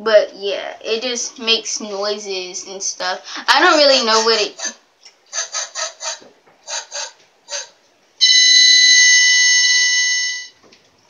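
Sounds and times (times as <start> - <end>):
loud alarm-like buzzer tone: 6.7 - 10.6
short electronic beeps: 8.2 - 10.6.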